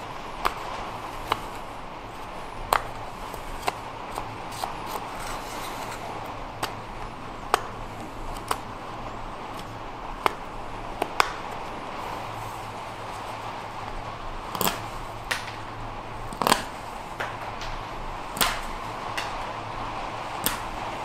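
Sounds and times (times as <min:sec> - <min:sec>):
steady background hiss: 0:00.0 - 0:21.0
knife cutting wood shavings: 0:00.4 - 0:07.1, 0:16.3 - 0:16.8.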